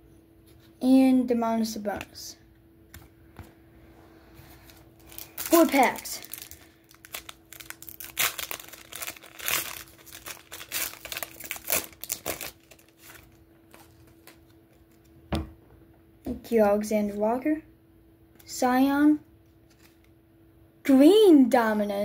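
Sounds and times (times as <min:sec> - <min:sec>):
foil pack tearing and crinkling: 0:04.6 - 0:14.6.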